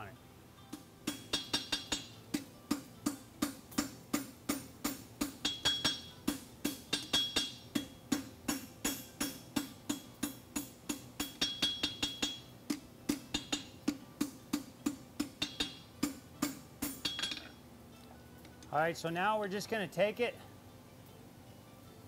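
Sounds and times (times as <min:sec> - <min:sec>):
hammer striking hot steel: 0:00.7 - 0:17.6
anvil ringing: 0:01.0 - 0:02.2, 0:03.8 - 0:12.5, 0:15.3 - 0:17.6.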